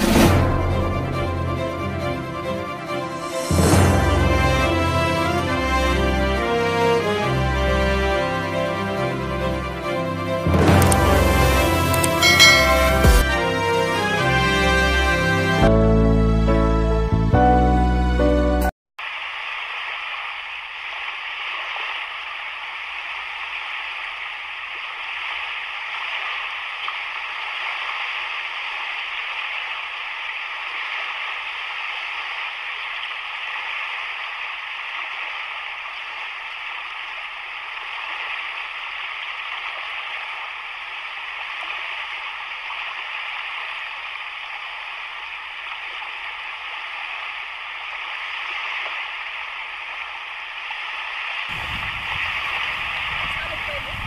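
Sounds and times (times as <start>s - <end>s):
sea waves washing against rocks: 19.1s - 54.0s.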